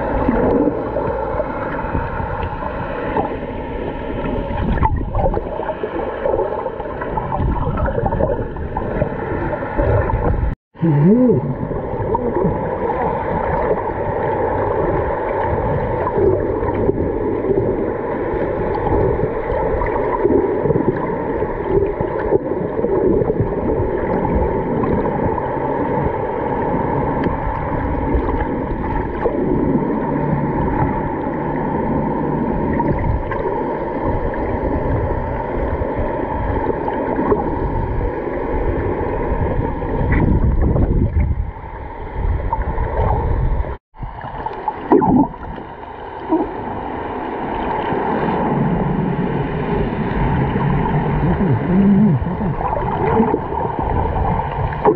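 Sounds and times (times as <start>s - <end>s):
muffled underwater water rushing: 0.0s - 54.9s.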